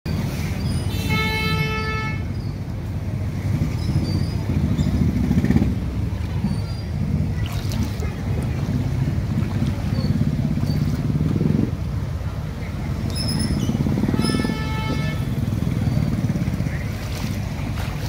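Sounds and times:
low rumble of traffic: 0:00.1 - 0:18.0
vehicle horn: 0:00.9 - 0:02.3, 0:14.1 - 0:15.6.

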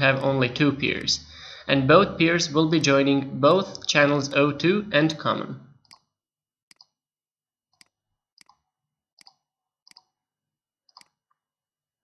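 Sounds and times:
computer mouse clicking: 0:05.8 - 0:07.0, 0:07.7 - 0:10.2, 0:10.9 - 0:11.4.

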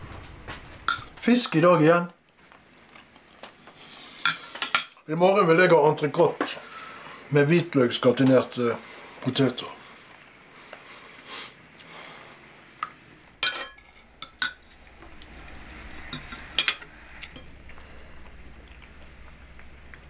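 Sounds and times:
cutlery clinking on plates: 0:13.4 - 0:14.6.

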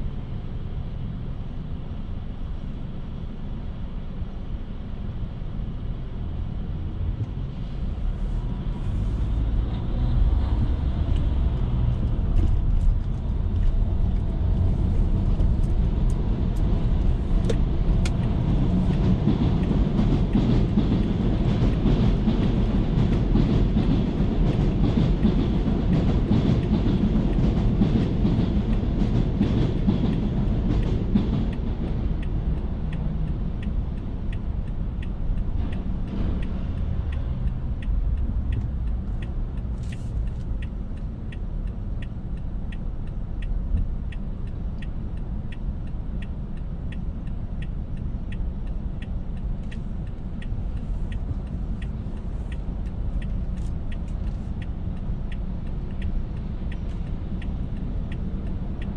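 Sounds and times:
car interior hum: 0:00.5 - 0:23.6, 0:37.1 - 0:58.9
elevated train clattering overhead: 0:09.3 - 0:39.5
turn-signal ticks: 0:15.2 - 0:23.9, 0:24.5 - 0:58.9.

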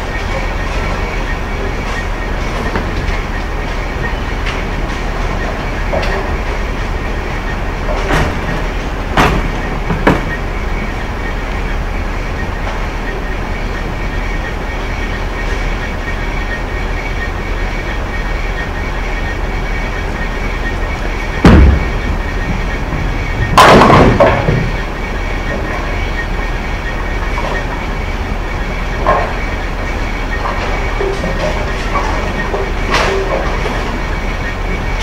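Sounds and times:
bowling pins crashing: 0:00.0 - 0:11.4, 0:20.6 - 0:26.3, 0:28.6 - 0:35.0
balls rolling and pinsetting machinery: 0:00.0 - 0:35.0
knocks: 0:21.4 - 0:24.8.

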